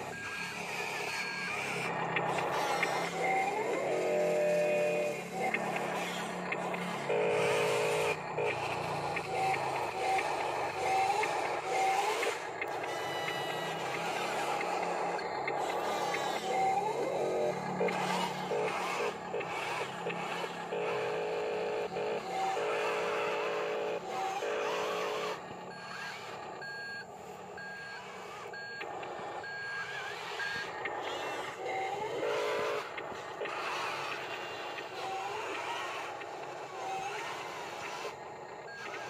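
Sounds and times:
buzzing simulated engine sound: 0.0s - 39.0s
electric motors whining: 0.0s - 39.0s
back-up beeper beeping: 9.2s - 15.7s, 26.6s - 30.7s.

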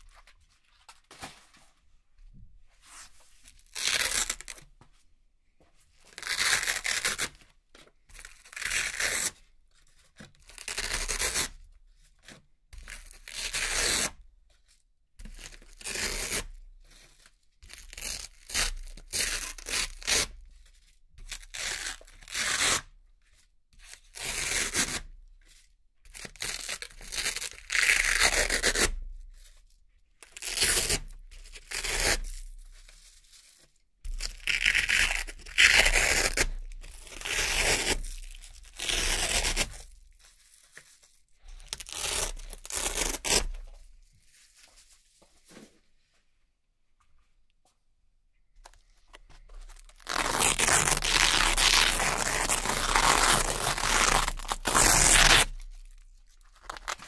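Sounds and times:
velcro peeling apart: 3.7s - 4.6s, 34.1s - 43.8s, 49.6s - 57.0s.

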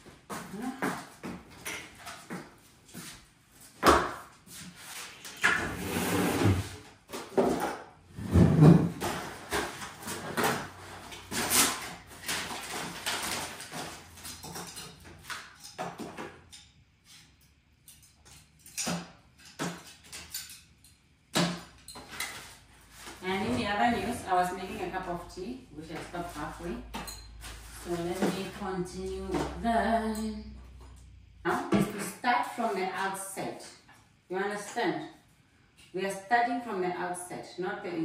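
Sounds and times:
furniture knocking and scraping: 5.5s - 11.3s, 23.1s - 24.6s.

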